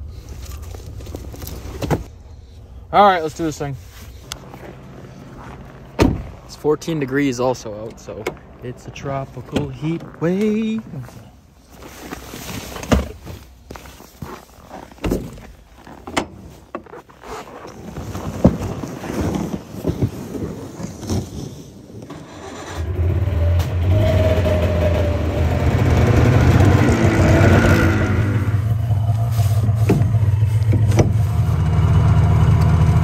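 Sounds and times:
snowmobile engine running: 22.2s - 33.0s.

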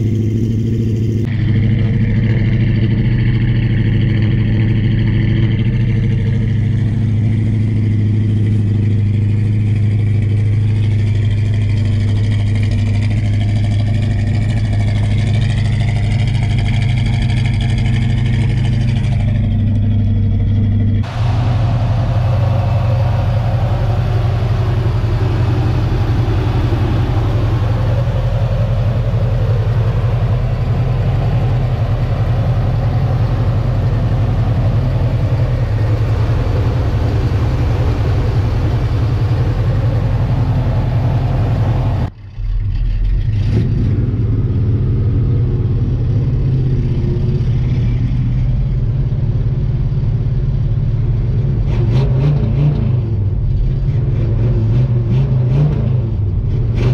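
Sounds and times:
truck engine idling: 0.0s - 43.3s, 43.9s - 51.7s.

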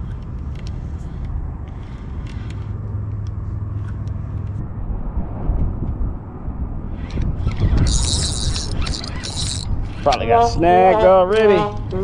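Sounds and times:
wind buffeting microphone: 4.5s - 12.0s
fishing reel clicking: 7.1s - 10.4s.

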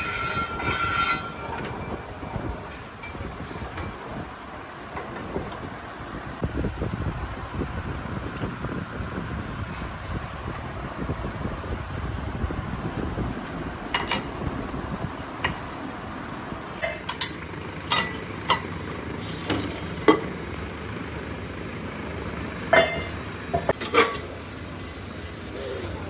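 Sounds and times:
metal clanks and knocks: 0.0s - 4.0s, 13.9s - 14.4s, 16.8s - 18.8s, 19.4s - 20.4s, 22.7s - 24.3s.

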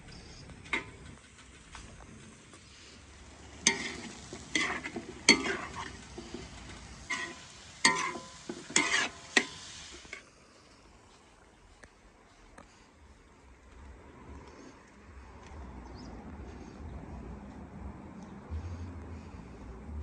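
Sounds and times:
meat sizzling: 3.3s - 10.2s
metal spatula scraping wok: 3.3s - 10.2s.

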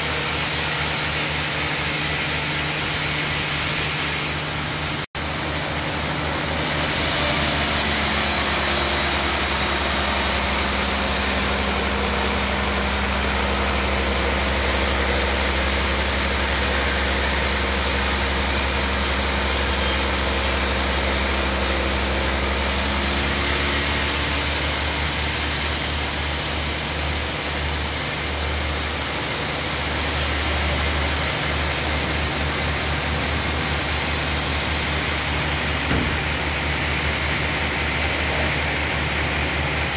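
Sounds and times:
saw blade cutting log: 0.0s - 39.9s
sawmill drive drone: 0.0s - 39.9s.

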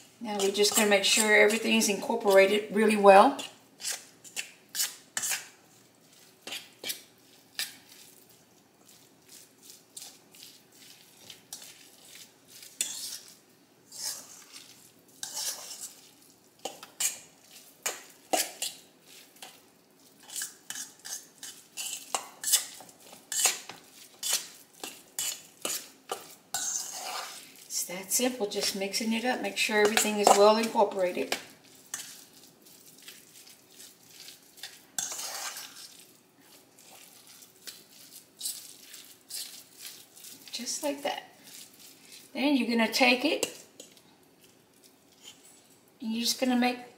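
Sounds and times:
fork scraping metal bowl: 0.4s - 2.6s, 3.4s - 5.5s, 9.7s - 19.6s, 20.2s - 27.5s, 29.8s - 40.6s.

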